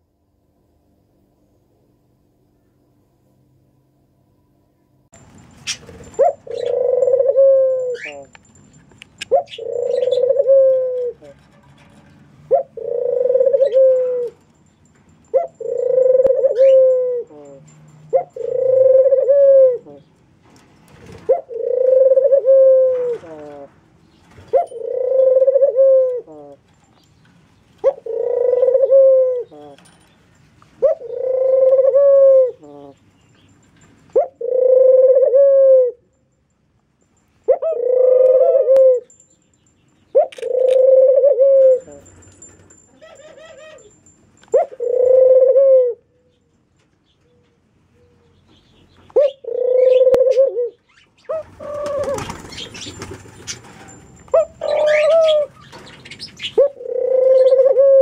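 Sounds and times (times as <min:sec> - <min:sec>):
doves cooing: 0:05.6 - 0:08.4, 0:09.2 - 0:11.4, 0:12.5 - 0:14.4, 0:15.3 - 0:20.0, 0:20.9 - 0:26.7, 0:27.8 - 0:29.9, 0:30.8 - 0:33.0, 0:34.1 - 0:36.0, 0:37.5 - 0:39.0, 0:40.2 - 0:46.1, 0:49.1 - 0:58.0.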